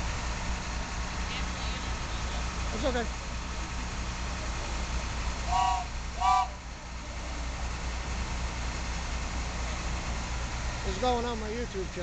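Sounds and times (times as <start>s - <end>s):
truck engine idling: 0.0s - 12.0s
truck horn toots: 5.5s - 6.6s.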